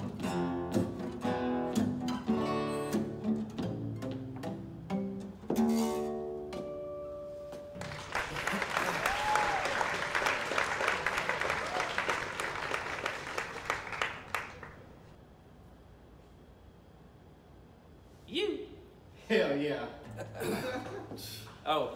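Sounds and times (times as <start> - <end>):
acoustic guitar and bass chord: 0.0 - 7.5
audience applauding: 7.8 - 15.0.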